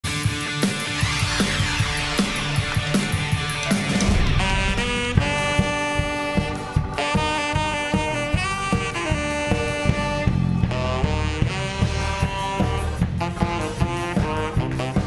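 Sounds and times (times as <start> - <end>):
bass: 0.0 - 15.0
drum beat: 1.4 - 9.8
saxophone melody: 4.2 - 15.0.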